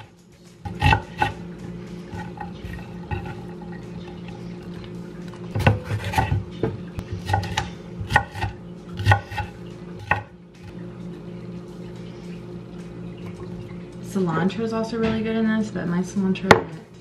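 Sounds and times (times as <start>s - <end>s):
knife chopping on wooden board: 0.7s - 1.4s, 5.6s - 10.3s.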